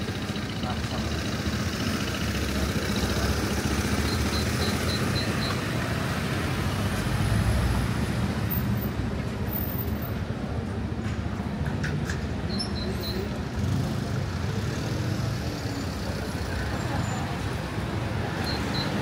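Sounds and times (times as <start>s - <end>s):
road traffic rumble: 0.0s - 19.0s
short high beeps: 3.9s - 5.7s, 18.4s - 19.0s.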